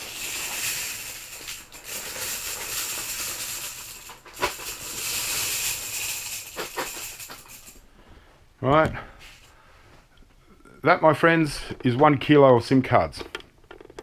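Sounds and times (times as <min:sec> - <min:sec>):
plastic cards rattling and sliding: 0:00.0 - 0:07.6.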